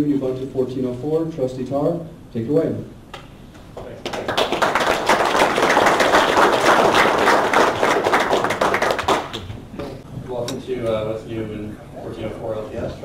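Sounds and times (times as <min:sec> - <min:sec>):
audience applauding: 0:03.8 - 0:09.5.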